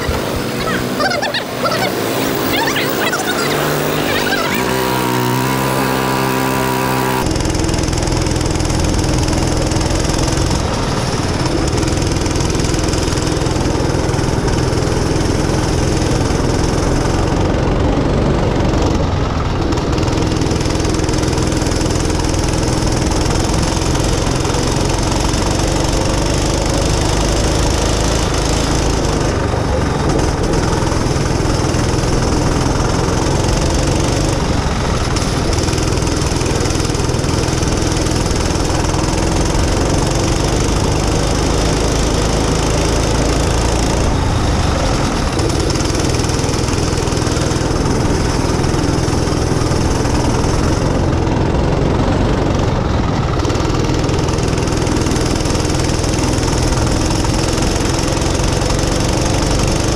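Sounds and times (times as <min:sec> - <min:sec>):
tyre noise: 0:00.0 - 0:07.2
go-kart engine running: 0:00.0 - 0:59.9.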